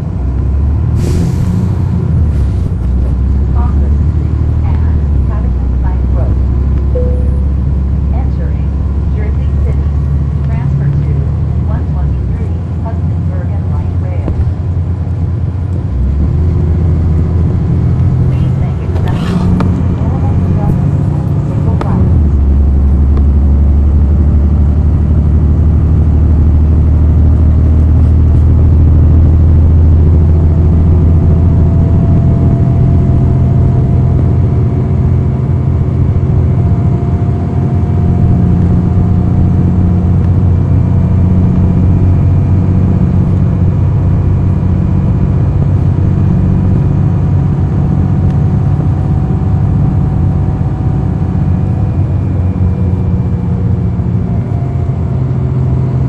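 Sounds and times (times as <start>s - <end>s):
bus diesel engine droning: 0.0s - 56.0s
faint rising whine: 6.4s - 10.4s.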